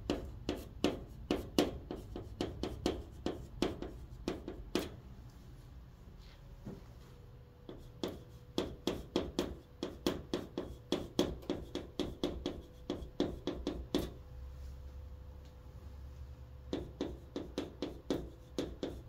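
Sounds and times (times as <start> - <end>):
chalk tapping on chalkboard: 0.0 - 5.0, 7.7 - 14.2, 16.7 - 19.0
faint steady hum: 0.0 - 19.0.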